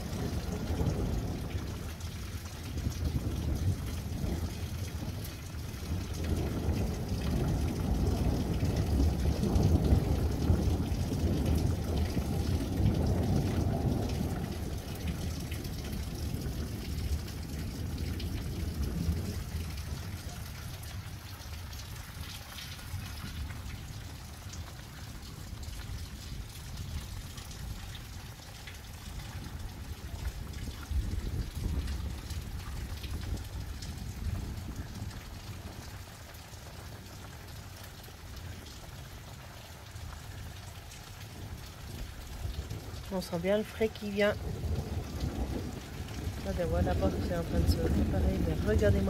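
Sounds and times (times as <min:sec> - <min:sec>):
low thunder rumble: 0:00.0 - 0:49.0
steady rain falling: 0:00.0 - 0:49.0.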